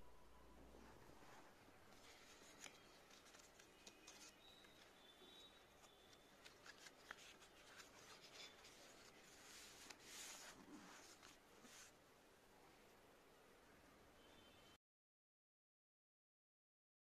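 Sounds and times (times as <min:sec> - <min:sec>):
paper pages flipping: 0:01.9 - 0:11.9.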